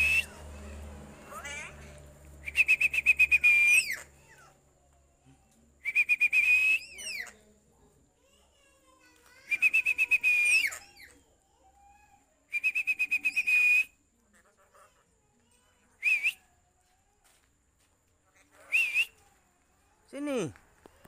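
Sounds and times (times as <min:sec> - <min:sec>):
person whistling trilled notes: 0:02.4 - 0:03.9.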